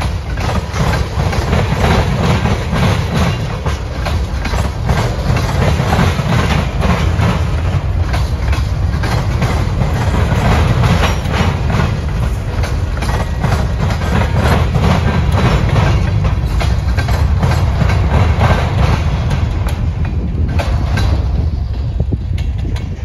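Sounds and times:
freight train rolling past: 0.0s - 23.0s
wheel clacks on rails: 0.0s - 23.0s.

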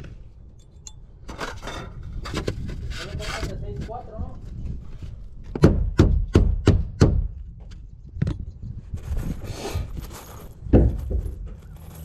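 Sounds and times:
scraping rustle: 1.3s - 5.3s, 8.9s - 12.0s.

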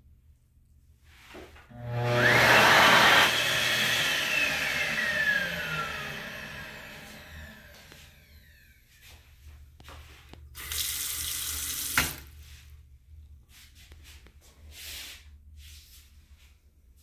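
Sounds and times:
water running from faucet into sink: 10.6s - 12.3s.

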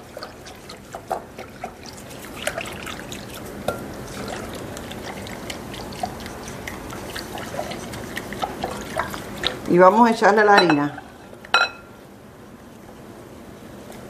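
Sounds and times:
batter stirred in glass bowl: 0.0s - 10.0s.

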